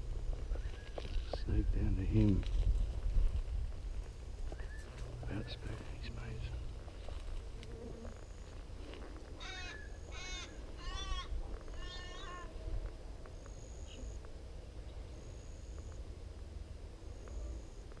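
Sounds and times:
wind rumble on microphone: 0.0 - 7.8
animal calling: 9.4 - 12.6.

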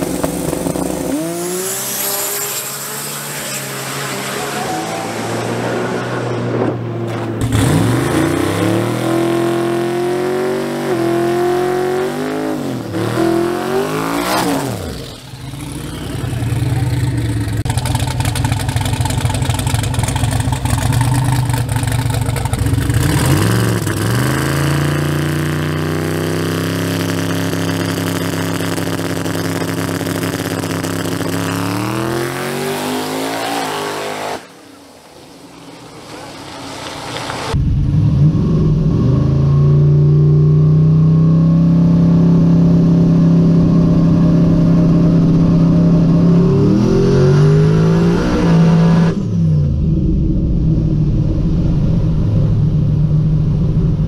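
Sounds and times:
pickup truck engine revving: 0.0 - 34.4.

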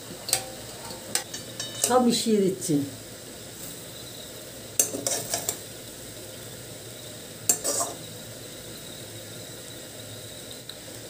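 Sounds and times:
faint hiss: 0.0 - 11.0
metal spatula scraping a pan: 0.8 - 2.0, 4.8 - 5.6, 7.5 - 8.1.

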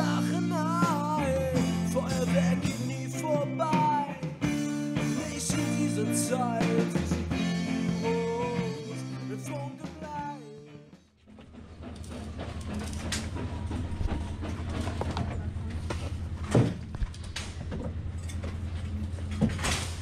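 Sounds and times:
sliding lead melody: 0.0 - 10.8.

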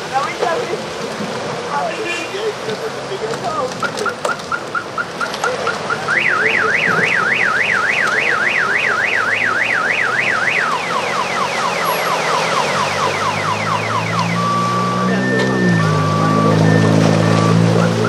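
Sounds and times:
car alarm cycling tones: 3.8 - 18.0.

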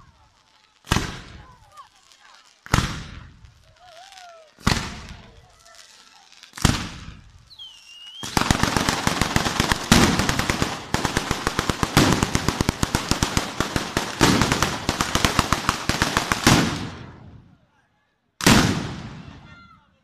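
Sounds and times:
firecrackers banging: 0.0 - 17.4
heavier firecracker bangs: 2.6 - 3.3, 4.6 - 5.2, 6.6 - 7.3, 8.2 - 17.4, 18.4 - 19.4.

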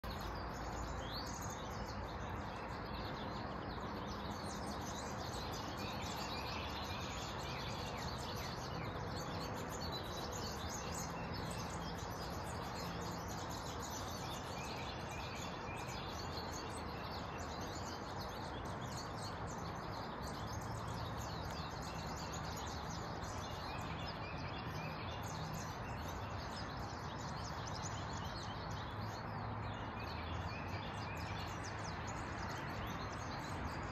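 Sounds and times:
bird chirps and calls: 0.0 - 33.9.

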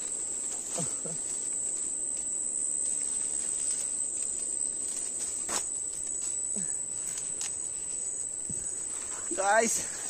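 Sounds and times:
high-pitched insect chorus: 0.0 - 10.0
twigs clicking: 2.9 - 8.6.

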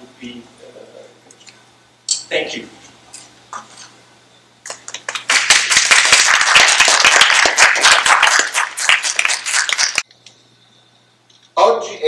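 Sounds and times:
hands clapping: 4.6 - 10.3.

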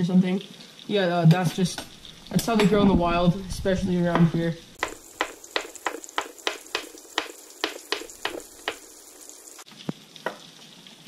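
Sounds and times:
fish sizzling in a pan: 1.6 - 3.5, 4.3 - 9.8
knife chopping on wooden board: 4.1 - 8.9.

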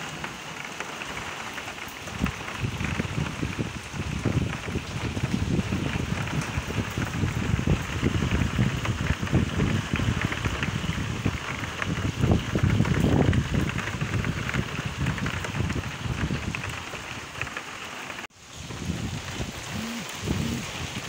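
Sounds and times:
rain falling: 0.0 - 21.0
wind rumbling on microphone: 2.0 - 17.6, 18.4 - 21.0.

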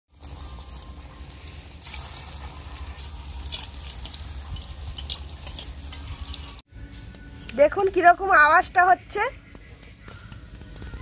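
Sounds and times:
oil crackling and popping: 0.1 - 6.6
food deep-frying in oil: 0.1 - 6.7.

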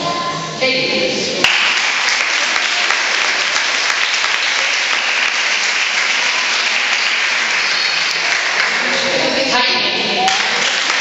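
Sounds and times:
audience applauding: 1.4 - 9.3, 10.2 - 11.0.

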